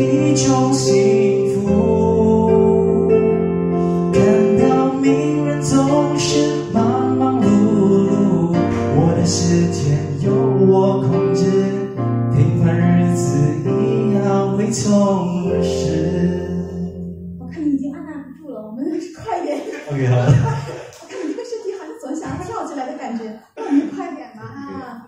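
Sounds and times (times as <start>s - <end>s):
man singing into microphone: 0.0s - 3.5s, 4.1s - 17.1s
electric keyboard: 0.0s - 18.3s.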